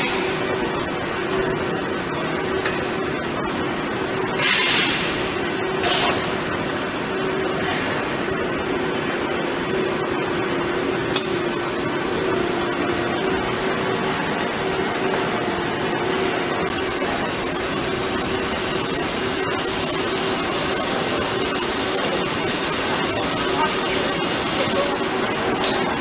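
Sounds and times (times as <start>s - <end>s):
drilling machine humming: 16.7s - 26.0s.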